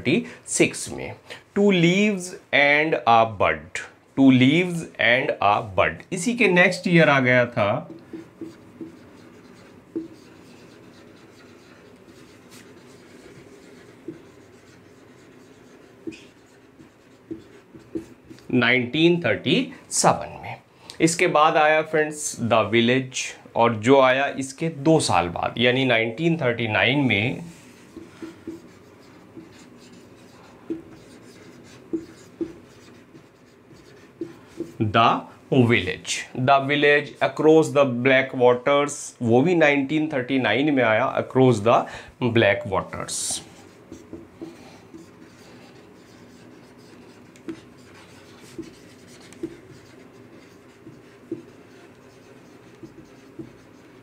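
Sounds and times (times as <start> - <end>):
marker pen writing on whiteboard: 5.6 - 20.6, 24.5 - 37.5, 43.0 - 54.0
marker tapping on whiteboard: 7.8 - 18.5, 27.8 - 34.8, 43.4 - 54.0.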